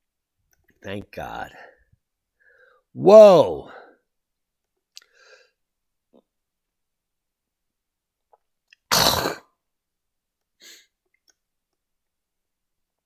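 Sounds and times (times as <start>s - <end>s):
faint small noises: 0.0s - 3.0s, 4.0s - 13.0s
person sneezing: 8.9s - 9.6s.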